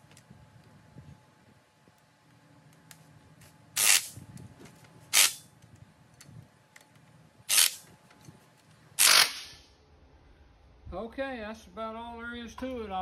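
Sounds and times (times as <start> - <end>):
cordless drill bursts: 3.8 - 4.1, 5.1 - 5.4, 7.5 - 7.8, 9.0 - 9.6.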